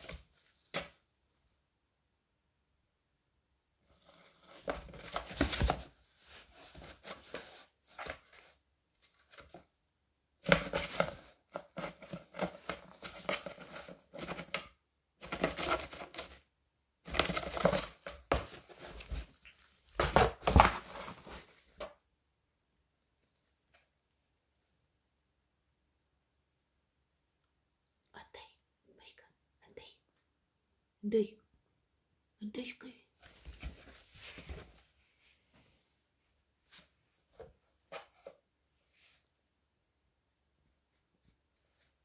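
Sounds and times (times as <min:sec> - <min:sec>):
cat scraping cardboard box: 0:03.9 - 0:09.6, 0:10.4 - 0:16.4, 0:17.1 - 0:21.8.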